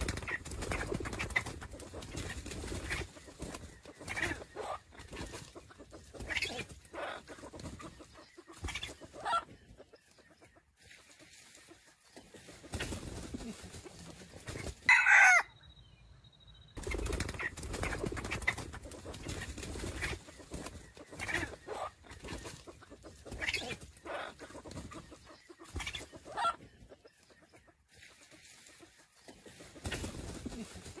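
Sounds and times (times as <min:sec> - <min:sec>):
rooster clucking: 0:00.0 - 0:09.5, 0:17.3 - 0:26.6
rooster call falling in pitch: 0:14.9 - 0:15.5.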